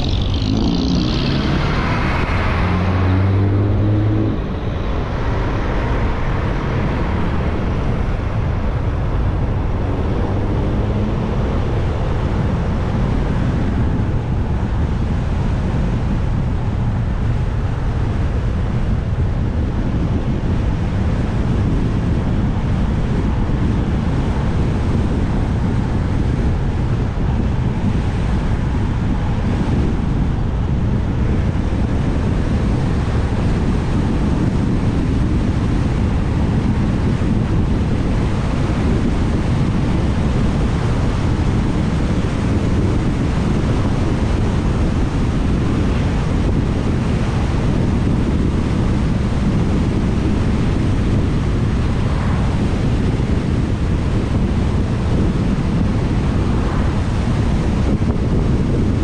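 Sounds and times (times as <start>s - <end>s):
motorcycle engine running: 0.0s - 1.6s
wind rushing over microphone: 0.0s - 59.0s.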